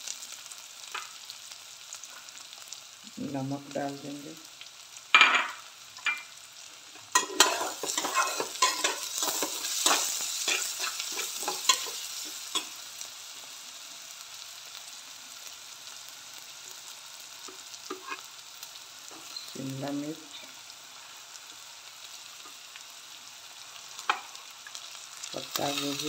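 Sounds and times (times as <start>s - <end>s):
vegetables sizzling: 0.0s - 26.0s
spatula scraping a steel pan: 7.2s - 11.9s, 17.9s - 18.2s.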